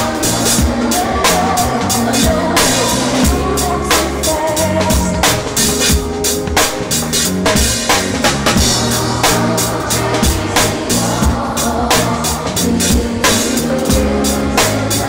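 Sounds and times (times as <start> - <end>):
bass line: 0.0 - 15.0
drum kit groove: 0.0 - 15.0
held keyboard or vocal notes: 0.0 - 15.0.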